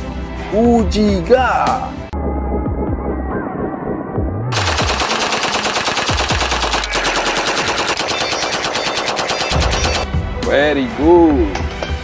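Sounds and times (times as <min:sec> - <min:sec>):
submachine gun automatic fire: 0:04.5 - 0:10.0.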